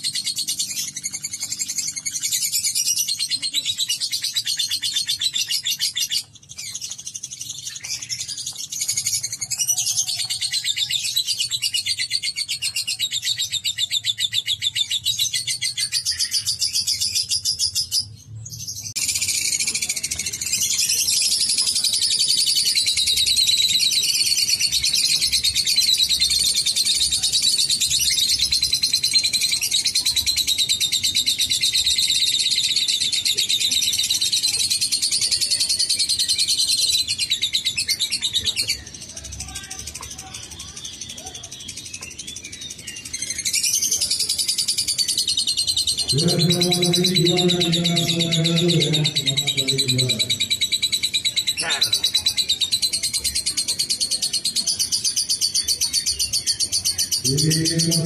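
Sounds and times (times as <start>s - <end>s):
lovebird chattering trill: 43.0s - 58.0s.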